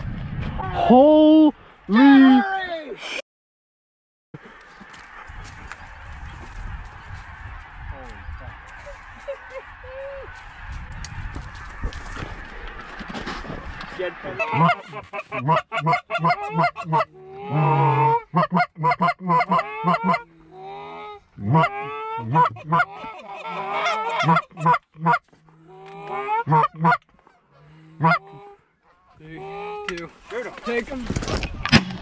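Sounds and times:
geese honking and clucking: 4.5 - 31.0.

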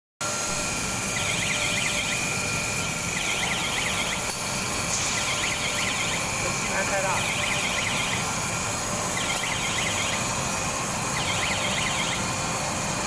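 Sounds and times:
factory machinery noise: 0.2 - 13.0
warbling electronic alarm: 0.3 - 13.0.

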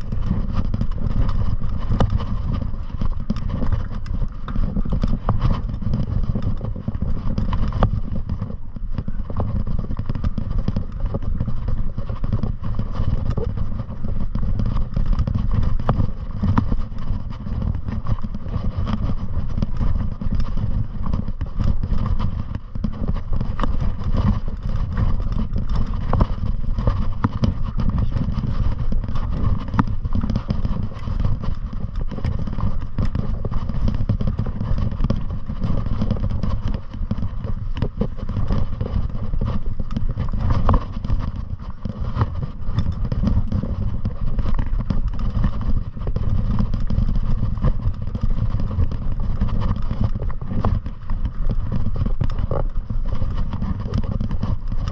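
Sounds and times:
wind buffeting microphone: 0.0 - 54.9.

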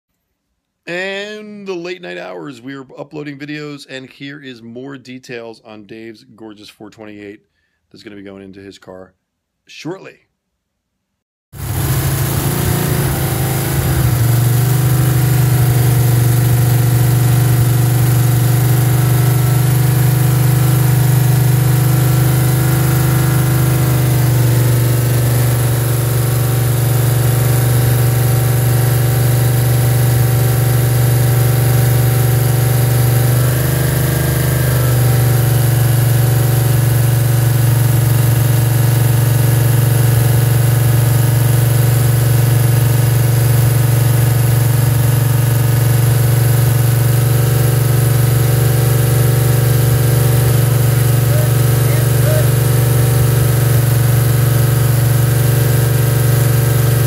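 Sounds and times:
engine running: 11.6 - 57.0.

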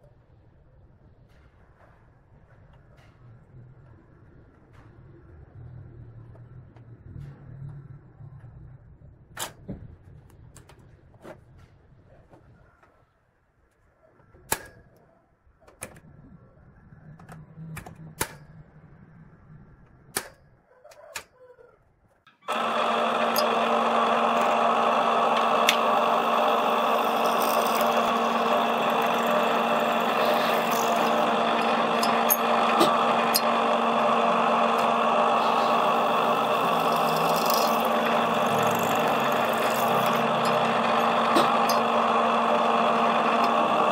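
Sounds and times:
drill press boring into steel: 22.4 - 43.9.

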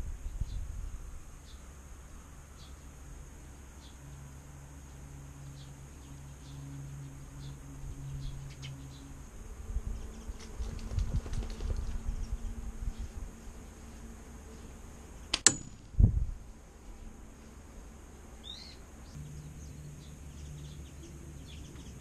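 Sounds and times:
pellet striking metal crack: 15.3 - 15.9.

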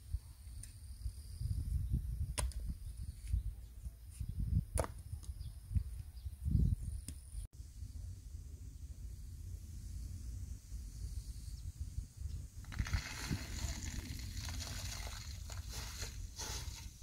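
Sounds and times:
hoe striking stony soil: 12.6 - 17.0.

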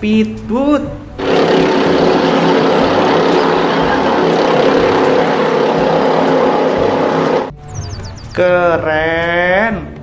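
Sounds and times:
powerboat engines droning: 1.2 - 7.5.

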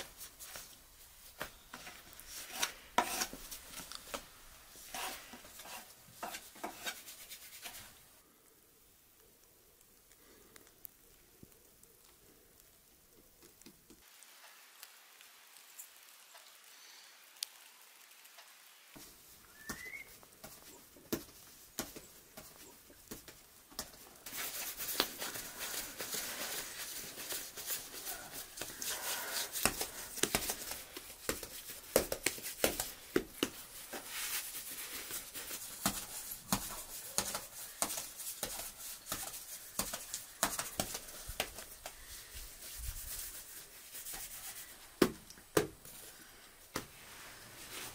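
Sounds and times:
hands kneading bread dough: 0.0 - 8.1, 19.0 - 47.9
faint ticks: 9.2 - 14.9.

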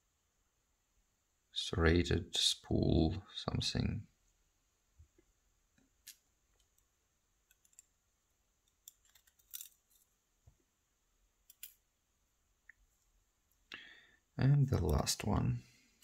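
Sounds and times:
tweezers and pins clicking: 6.0 - 7.9.

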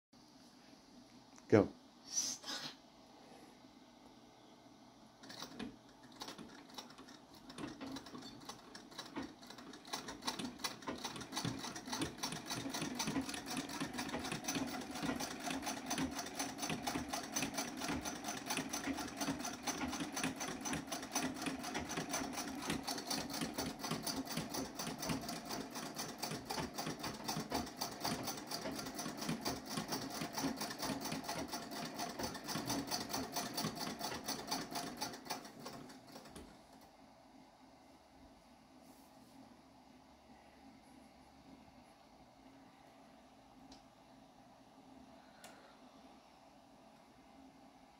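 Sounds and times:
treadle sewing machine clatter: 5.2 - 36.8.

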